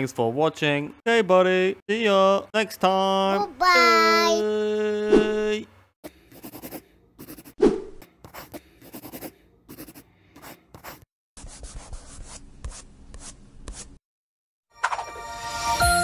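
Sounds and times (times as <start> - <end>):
drawing tool scratching paper: 6.2 - 7.6, 8.2 - 14.0.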